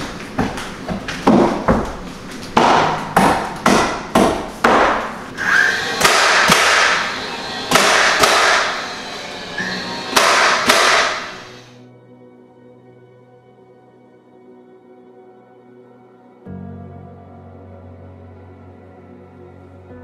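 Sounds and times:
nail gun shots: 0:04.7 - 0:08.9, 0:10.1 - 0:11.6
nail gun whine: 0:04.8 - 0:11.8.

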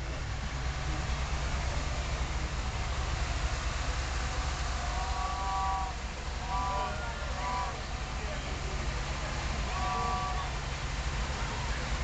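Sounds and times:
large vehicle engine rumbling: 0:00.0 - 0:12.0
high horn toots: 0:04.9 - 0:07.8, 0:09.7 - 0:10.6.

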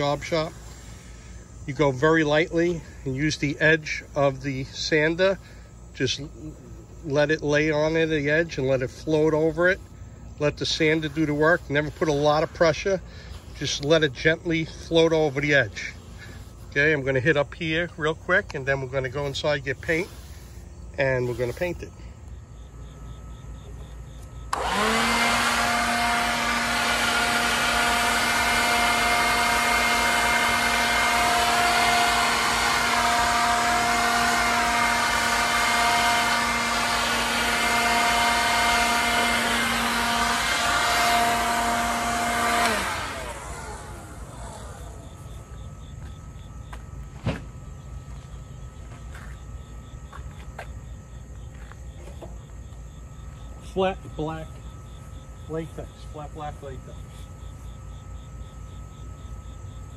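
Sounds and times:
power sander motor running: 0:00.0 - 0:22.4, 0:23.0 - 0:47.2.

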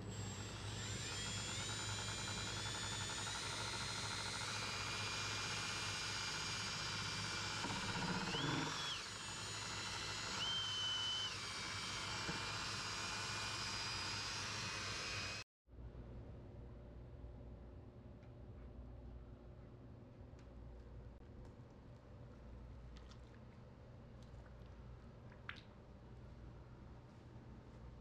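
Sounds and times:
power tool motor whining: 0:00.1 - 0:15.4.

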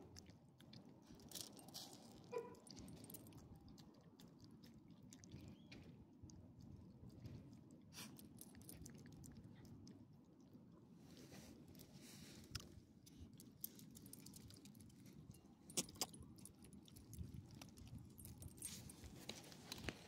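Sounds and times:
dog chewing wet clicks: 0:00.0 - 0:10.6, 0:12.5 - 0:19.9.

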